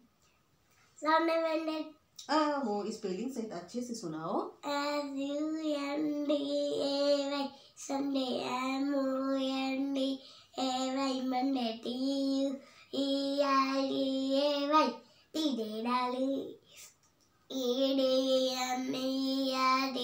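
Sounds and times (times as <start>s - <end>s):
girl chanting sing-song: 4.6s - 16.5s, 17.5s - 20.0s.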